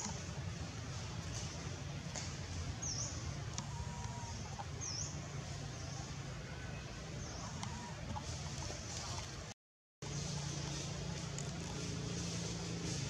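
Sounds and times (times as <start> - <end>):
faint chicken clucking: 6.5 - 9.3.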